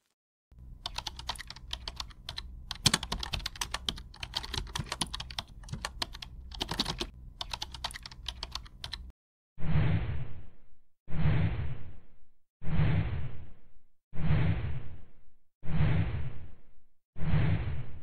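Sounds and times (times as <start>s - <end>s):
low steady hum: 0.6s - 9.1s
keyboard typing: 0.8s - 9.1s.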